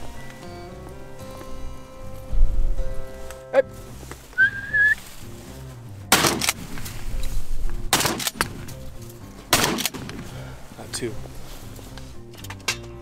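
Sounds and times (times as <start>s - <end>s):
soft background music: 0.0s - 13.0s
short high whistle: 4.4s - 5.0s
shotgun blasts with echo: 6.1s - 6.7s, 7.9s - 8.6s, 9.5s - 10.2s.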